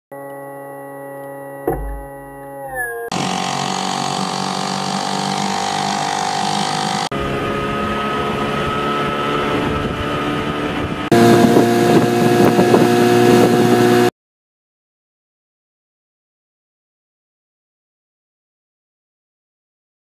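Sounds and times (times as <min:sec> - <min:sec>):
outboard motors running: 0:00.1 - 0:14.1
wind on microphone: 0:06.5 - 0:14.1.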